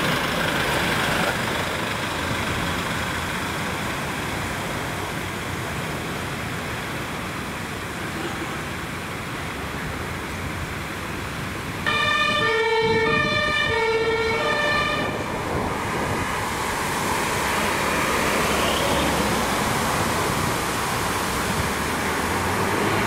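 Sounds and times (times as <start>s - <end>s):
traffic and engine noise: 0.0s - 23.0s
two-tone siren: 11.8s - 15.3s.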